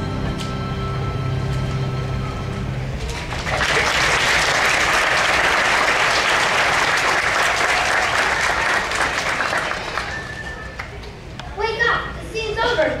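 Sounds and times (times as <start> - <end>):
audience applauding: 3.0 - 11.1.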